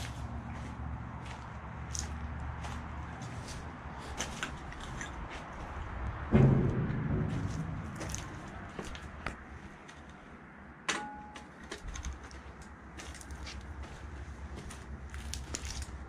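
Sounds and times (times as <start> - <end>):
low rumble: 5.8 - 9.7
clicks and knocks: 6.3 - 9.4.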